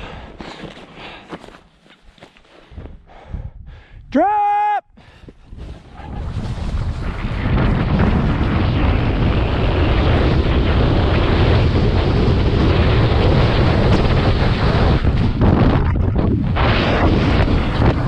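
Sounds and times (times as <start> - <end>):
wind buffeting microphone: 2.6 - 4.2, 5.0 - 18.0
snowboard sliding on snow: 5.6 - 15.2.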